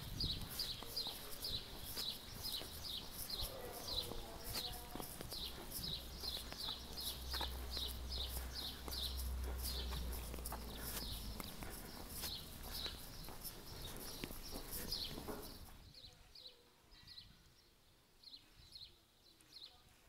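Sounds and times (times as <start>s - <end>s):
footsteps on pavement: 0.0s - 15.9s
low engine rumble: 0.8s - 15.1s.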